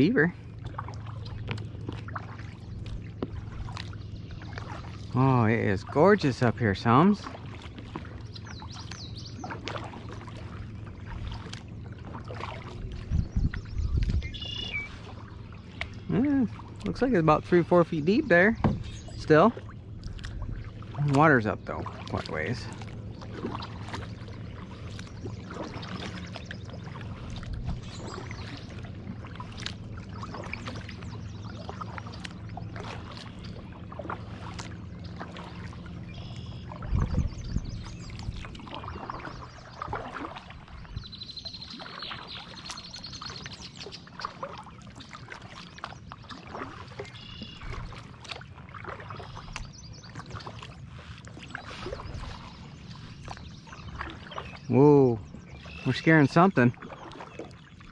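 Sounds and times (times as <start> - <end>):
paddle splashing in water: 0.0 - 57.9
water dripping: 18.5 - 33.4.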